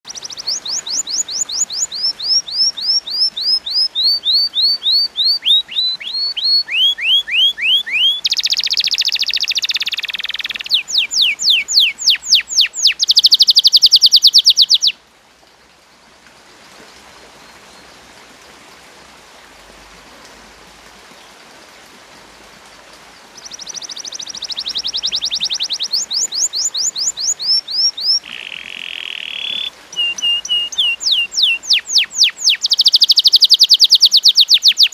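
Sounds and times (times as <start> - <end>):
canary singing: 0.0 - 15.0, 23.4 - 34.9.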